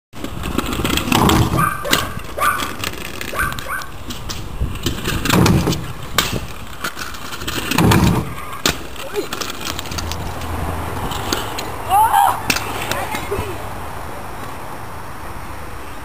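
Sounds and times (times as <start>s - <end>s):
scooter wheels rolling on concrete: 0.1s - 16.0s
scooter landing clack: 0.2s - 10.3s
dog barking: 1.6s - 2.6s, 3.3s - 3.9s.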